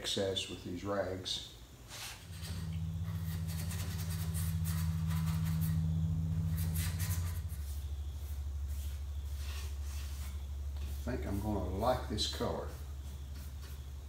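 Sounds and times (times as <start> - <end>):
machine humming: 2.1 - 12.1
paintbrush swishing on wood: 6.5 - 14.0.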